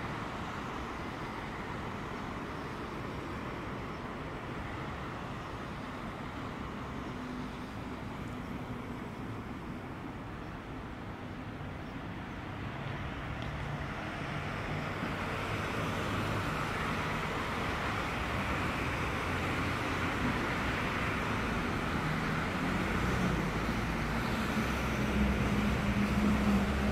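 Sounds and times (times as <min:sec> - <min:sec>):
cars driving on a street: 0:00.0 - 0:26.9
vehicle engine drawing close: 0:14.2 - 0:26.9.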